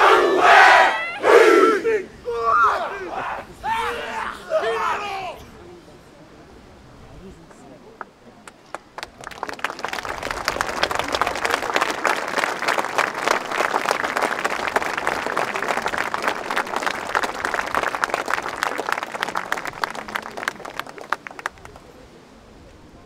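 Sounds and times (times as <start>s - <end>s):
crowd applauding: 8.4s - 22.0s.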